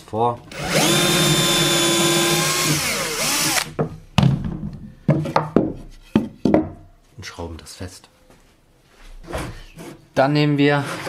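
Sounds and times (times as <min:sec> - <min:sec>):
cordless drill drilling wood: 0:00.5 - 0:03.8
sharp knocks of wood and clamps: 0:03.6 - 0:06.8.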